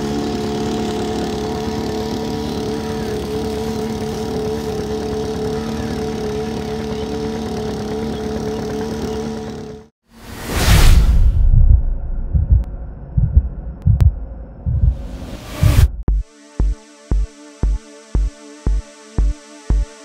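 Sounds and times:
water pump engine running: 0.0 - 9.9.

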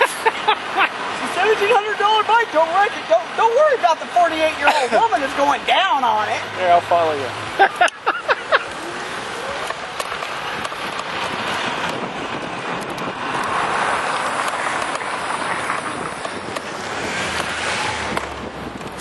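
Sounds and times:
road traffic: 0.0 - 19.0
wind on microphone: 8.6 - 19.0.

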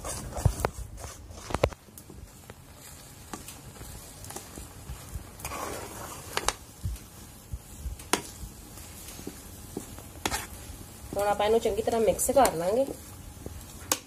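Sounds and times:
spoon scraping dough in metal pan: 0.0 - 1.8, 2.4 - 6.7, 8.0 - 11.4.

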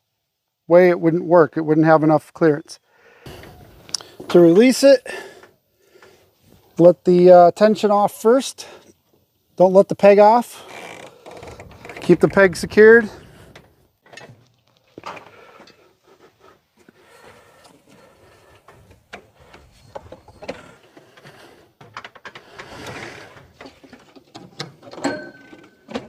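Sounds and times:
hands working metal tie-down: 10.6 - 15.9, 18.0 - 26.0.

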